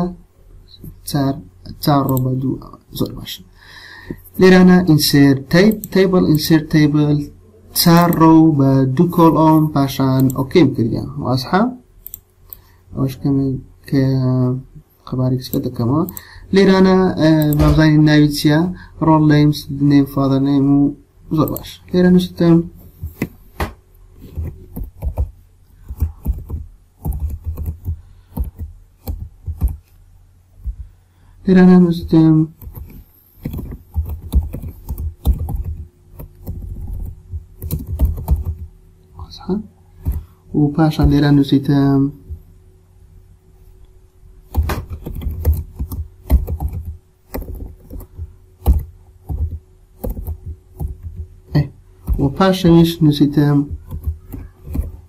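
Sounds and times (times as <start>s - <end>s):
faint steady hum: 0.0s - 55.0s
keyboard typing: 24.2s - 29.8s, 32.6s - 38.7s, 40.0s - 40.3s, 44.5s - 52.4s, 53.5s - 55.0s.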